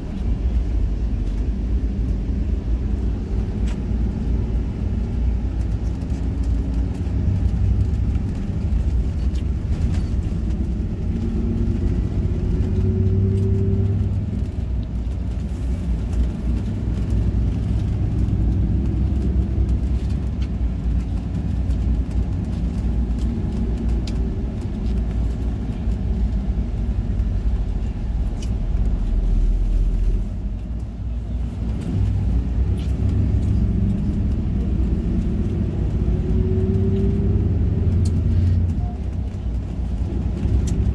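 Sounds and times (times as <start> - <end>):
bus engine: 0.0 - 40.9.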